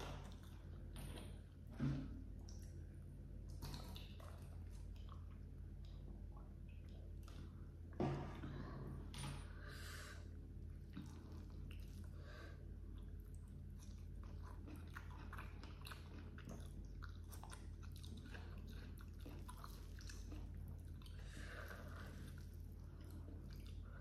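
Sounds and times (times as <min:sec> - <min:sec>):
wet chewing with clicks: 0:02.4 - 0:07.9, 0:12.9 - 0:24.0.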